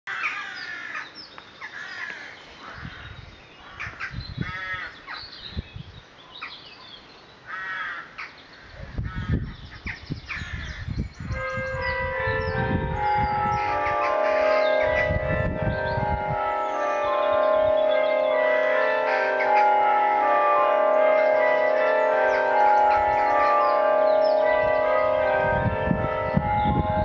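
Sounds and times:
crows calling: 0.1s - 5.4s, 7.4s - 27.0s
birds singing: 0.1s - 27.0s
wind buffeting microphone: 2.6s - 6.1s, 8.6s - 27.0s
church carillon bells ringing: 11.2s - 27.0s.

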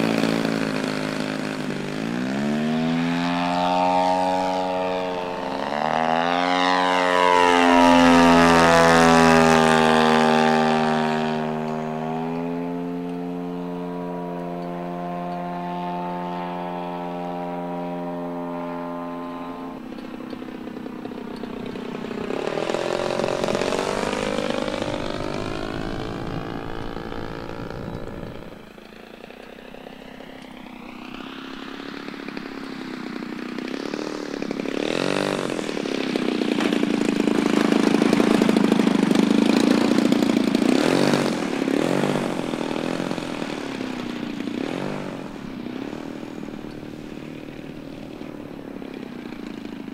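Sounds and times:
model airplane engine flying past: 0.0s - 49.9s.

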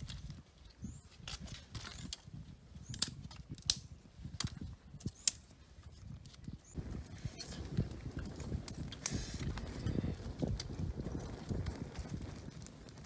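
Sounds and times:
fire crackling: 0.0s - 13.0s
twigs cracking and rustling: 0.0s - 13.0s
sticks snapping: 1.2s - 5.5s.

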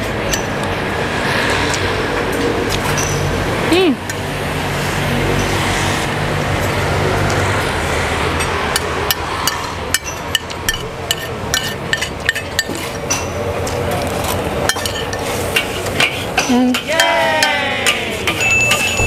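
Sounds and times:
street traffic noise: 0.0s - 19.0s
metal spoon clinking on plate: 14.7s - 17.2s, 18.3s - 19.0s.

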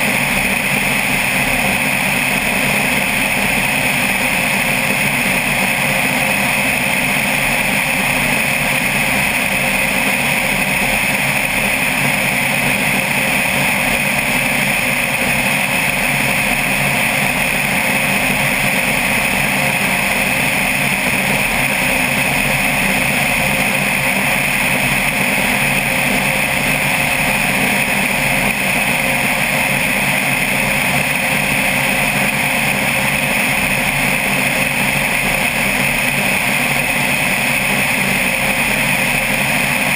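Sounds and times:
light aircraft engine drone: 0.0s - 39.9s.

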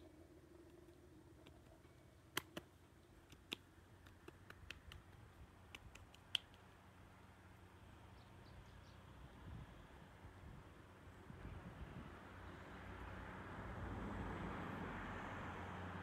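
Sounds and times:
sharp clicks: 0.6s - 6.7s
faint bird chirp: 8.0s - 9.2s.

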